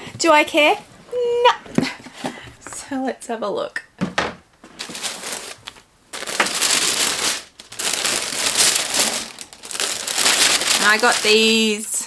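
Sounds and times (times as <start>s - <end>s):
tissue paper rustling and crinkling: 4.7s - 12.0s.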